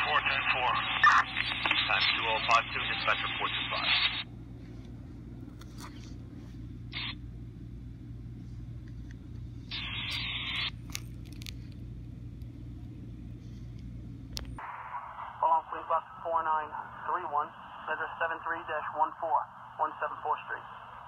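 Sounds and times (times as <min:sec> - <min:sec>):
radio static bursts: 0:00.0 - 0:04.3, 0:06.9 - 0:07.2, 0:09.7 - 0:10.7, 0:14.6 - 0:21.0
steady low hum: 0:00.0 - 0:21.0.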